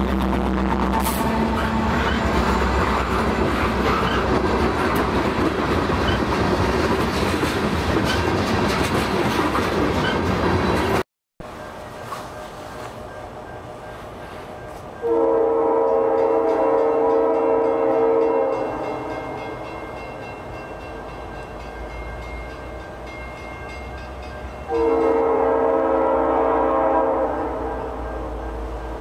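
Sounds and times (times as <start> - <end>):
train engine and wheels rumbling: 0.0 - 29.0
locomotive air horn blasts: 0.2 - 3.4, 15.0 - 19.5, 24.7 - 28.9.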